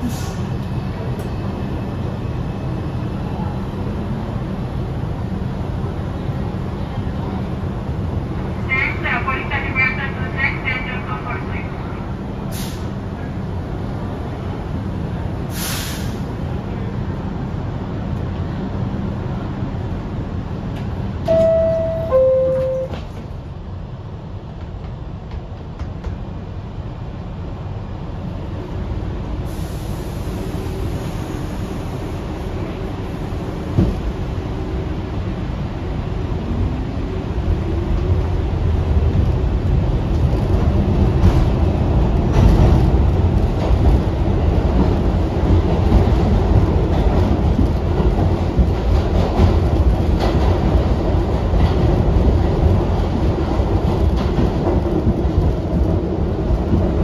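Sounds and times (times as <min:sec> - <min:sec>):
subway train rumble: 0:00.0 - 0:57.0
two-tone door chime: 0:21.3 - 0:23.0.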